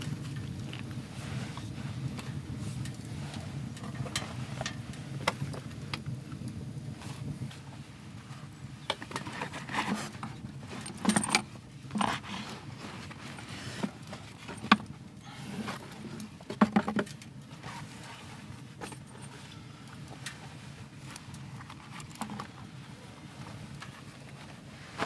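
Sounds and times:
canvas rustling: 0:09.2 - 0:16.7, 0:17.5 - 0:25.0.

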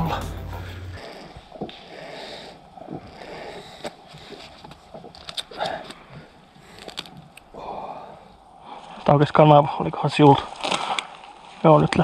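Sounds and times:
twigs ticking and snapping: 0:10.5 - 0:11.2.

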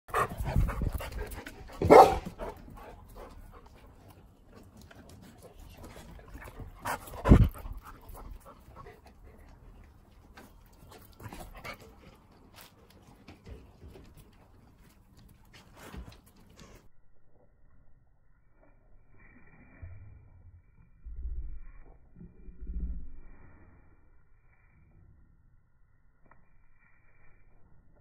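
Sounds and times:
dog noises: 0:00.1 - 0:04.2.

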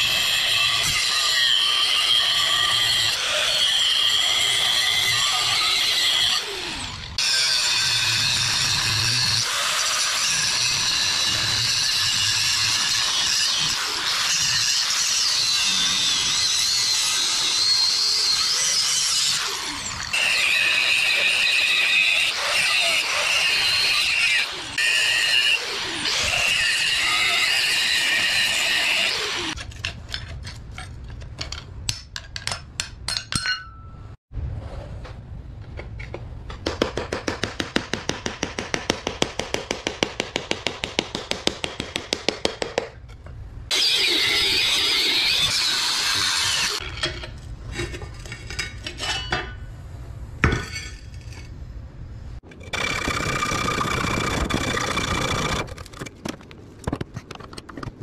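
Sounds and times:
angle grinder cutting steel: 0:00.0 - 0:29.6, 0:43.7 - 0:46.9.

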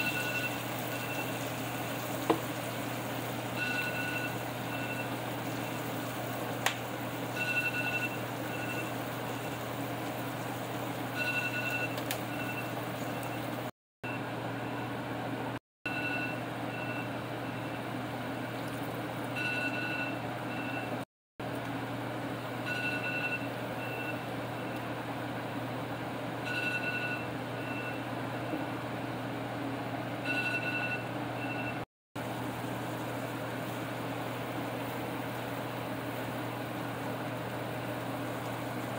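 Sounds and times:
meat sizzling in a skillet: 0:00.0 - 0:07.4.

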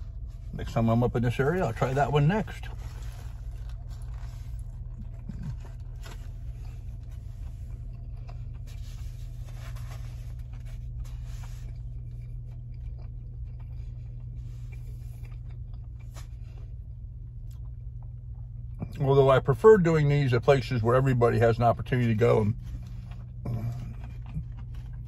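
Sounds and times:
low hum inside a car: 0:00.0 - 0:25.0
paper wrapper rustling: 0:02.6 - 0:06.6.

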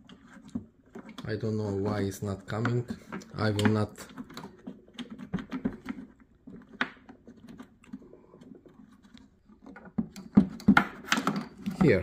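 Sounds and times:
plastic clicks and knocks: 0:02.4 - 0:12.0.

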